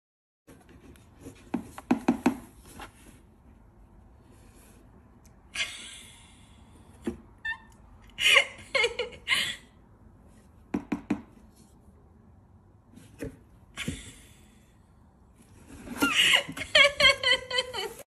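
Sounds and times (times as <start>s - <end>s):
knocks and scrapes on cardboard box: 0.5s - 3.2s.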